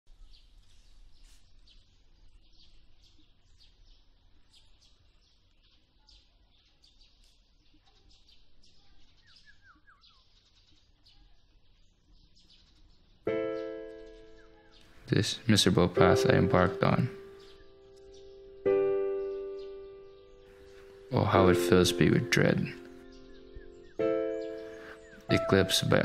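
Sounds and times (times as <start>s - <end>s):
birds chirping: 0.1s - 26.0s
loud music chord: 15.1s - 26.0s.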